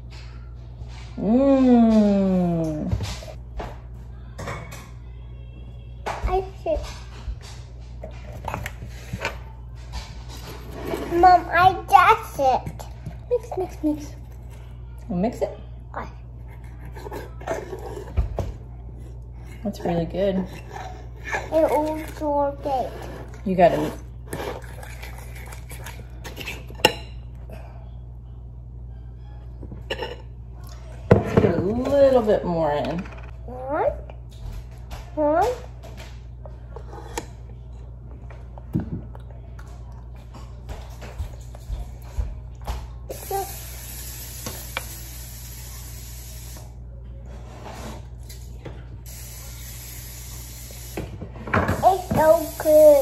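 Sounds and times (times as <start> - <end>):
low hum: 20.6 - 43.1.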